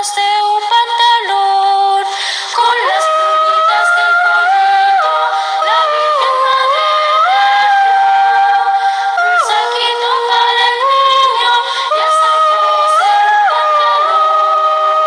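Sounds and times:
girls' choir singing a cappella: 0.0 - 15.0.

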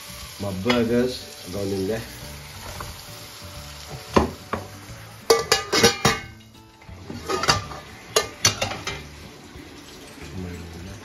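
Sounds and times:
clinks against steel pot: 5.3 - 6.3, 7.3 - 9.0.

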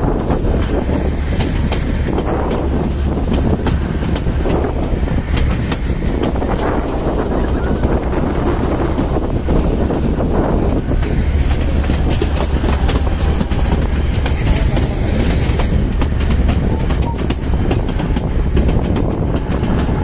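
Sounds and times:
train rumble: 0.0 - 20.0
wheels clicking over rail joints: 0.0 - 20.0.

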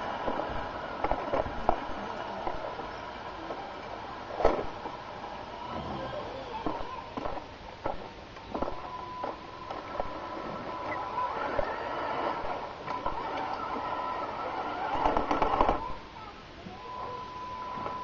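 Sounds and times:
electric motor whine: 0.0 - 16.0.

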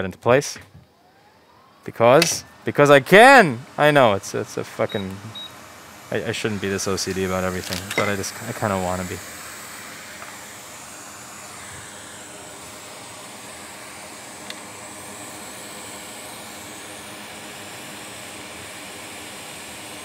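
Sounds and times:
hot air blowing: 1.4 - 20.0.

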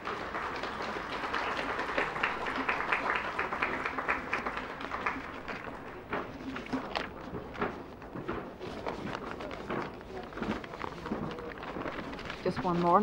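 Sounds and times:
spectators applauding: 0.0 - 6.7.

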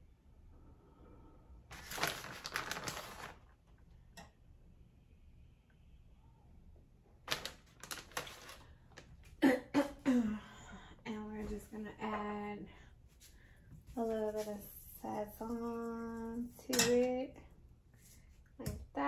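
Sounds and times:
plastic packaging crinkling: 1.7 - 3.6, 7.2 - 9.2.

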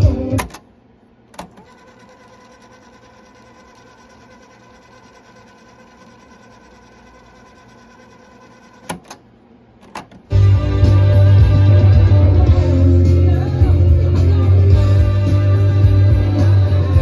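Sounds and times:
cassette tape winding whir: 0.0 - 0.7, 1.3 - 17.0
cassette deck keys clicking: 0.3 - 0.6, 9.8 - 10.3.

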